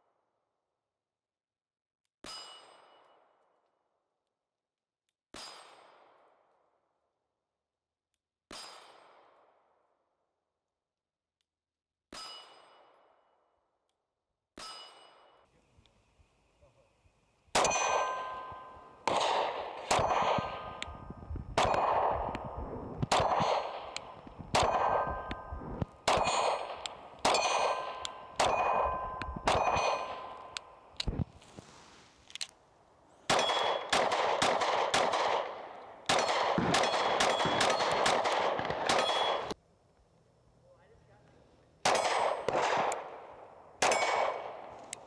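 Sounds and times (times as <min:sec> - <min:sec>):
pistol shots: 0:17.5 - 0:31.1, 0:33.3 - 0:39.6, 0:41.8 - 0:45.0
steel target ringing: 0:17.6 - 0:19.0, 0:26.2 - 0:30.6.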